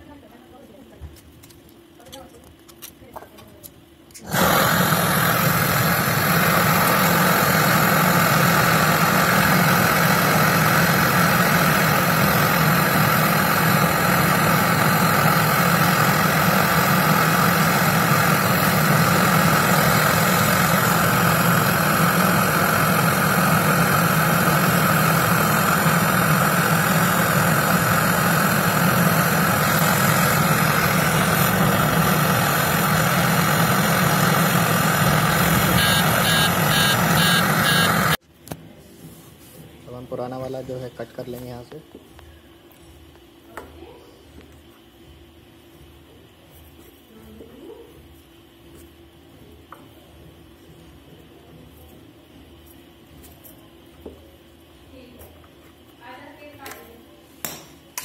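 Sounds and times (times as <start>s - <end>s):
gas torch hissing: 4.1s - 38.2s.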